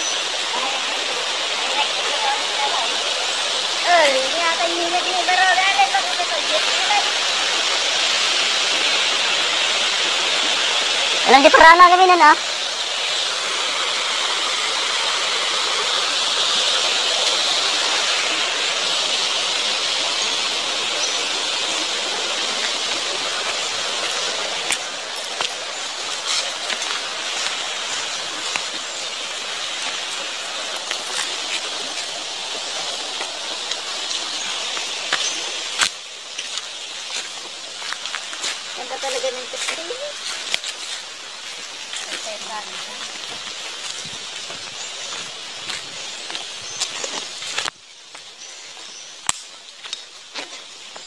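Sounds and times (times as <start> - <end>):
stream water rushing over rocks: 0.0 - 51.0
footsteps on dry leaves: 13.0 - 51.0
sharp snap: 49.3 - 49.5.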